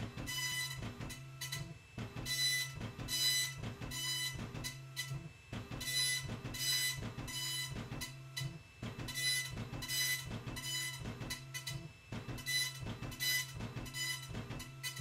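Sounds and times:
low motor hum: 0.0 - 15.0
printer head raspy buzz: 0.0 - 15.0.

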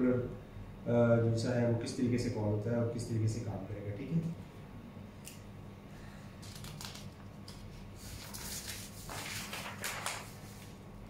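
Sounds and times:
faint steady hum: 0.0 - 11.0
paper rustling and sliding: 6.4 - 10.8.

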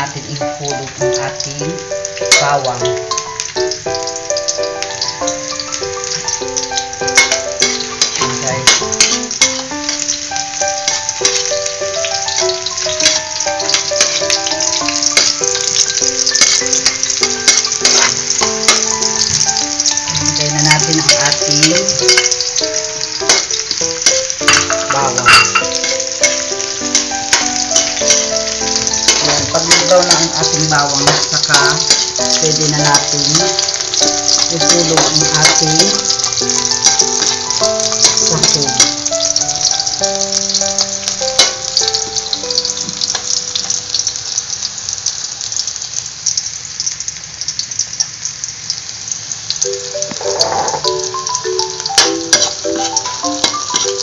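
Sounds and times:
background music with melody: 0.0 - 44.6, 49.6 - 54.0
garlic and onion sizzling in oil: 0.0 - 54.0
metal turner scraping a wok: 5.9 - 11.5, 12.3 - 40.6, 50.1 - 51.1, 51.9 - 54.0
metal spatula clicking on pan: 6.6 - 10.1, 12.3 - 20.0, 20.6 - 39.0.

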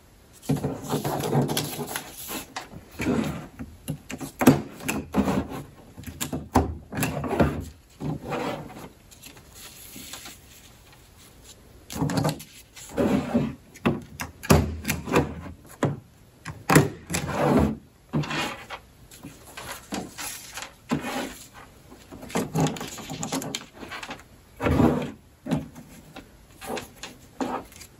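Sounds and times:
paper rustling: 0.4 - 2.8, 7.6 - 13.2, 18.2 - 24.3, 25.0 - 27.9.

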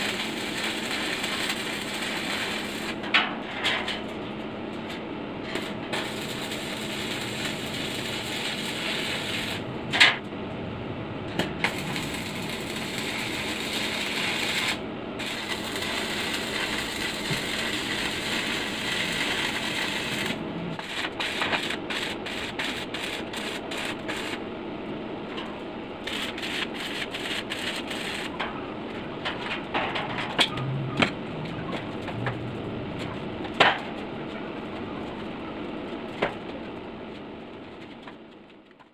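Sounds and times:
welding arc crackling: 0.0 - 3.1, 4.7 - 10.2, 11.4 - 24.4, 26.0 - 28.4.

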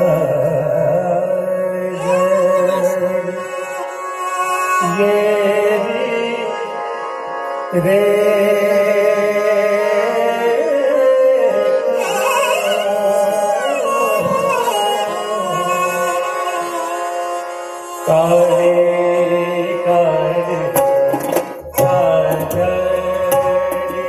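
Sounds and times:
ornamented melody: 0.0 - 24.0.

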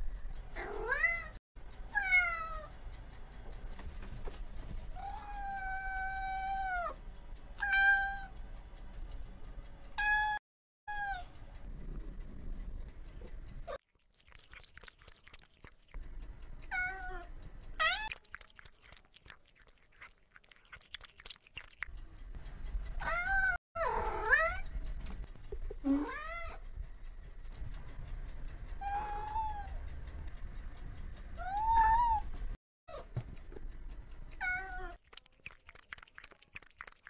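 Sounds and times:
cat meowing: 7.6 - 8.3, 23.0 - 24.6, 28.8 - 29.8, 31.4 - 32.3, 34.4 - 35.0.

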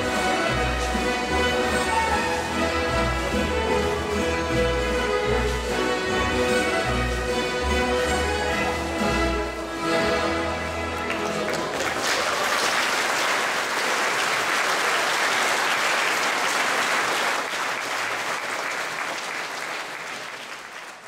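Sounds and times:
audience applauding: 10.6 - 21.0.

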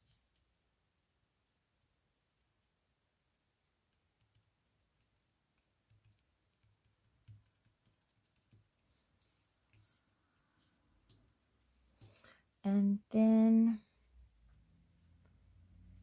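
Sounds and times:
fingers tapping paper on table: 4.2 - 8.7.

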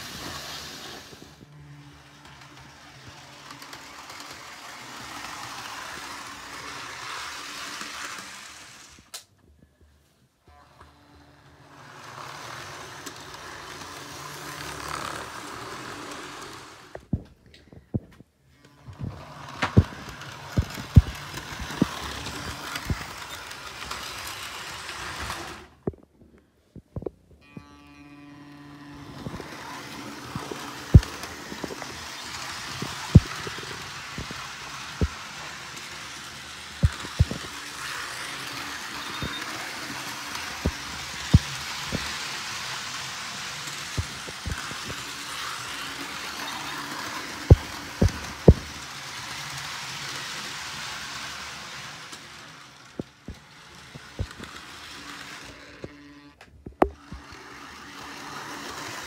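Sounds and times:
model train wheels rumbling on track: 0.0 - 9.2, 10.5 - 17.2, 18.6 - 25.8, 28.6 - 59.0
motor hum: 10.6 - 26.0, 27.0 - 49.0.

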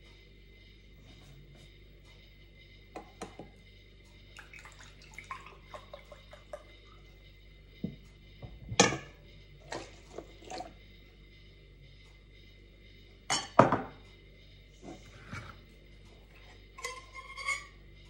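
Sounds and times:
milk splashing into metal bowl: 4.4 - 6.6
milk pouring into glass: 4.4 - 7.1.

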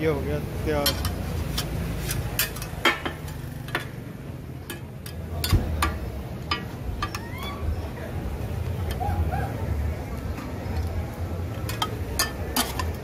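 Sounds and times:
metal spatulas clacking on griddle: 0.7 - 4.0, 4.6 - 7.2, 11.6 - 13.0.

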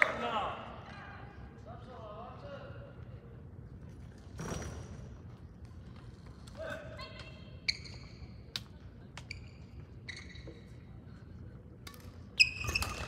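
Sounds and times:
sneakers squeaking on floor: 7.6 - 8.5, 9.2 - 11.0, 12.3 - 13.0.

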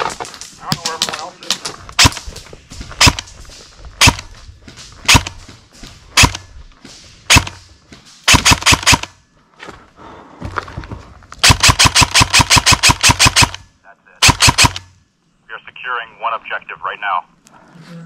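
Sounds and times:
airsoft rifle firing: 2.0 - 2.3, 3.0 - 3.3, 4.0 - 4.3, 5.0 - 5.4, 6.1 - 6.5, 7.3 - 7.6, 8.3 - 9.2, 11.4 - 15.0.

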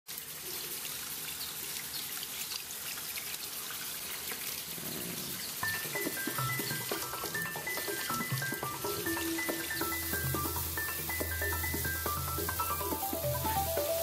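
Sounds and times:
water trickling and dripping: 0.1 - 14.0
melody of short stepped notes: 5.6 - 14.0.

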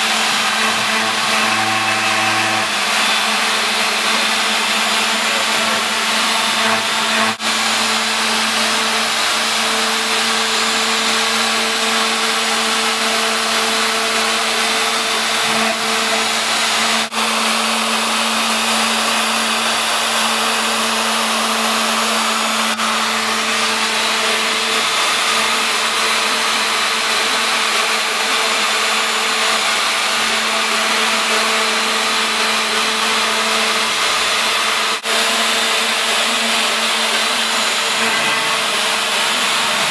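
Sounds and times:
cnc spindle motor whine: 0.0 - 39.9.

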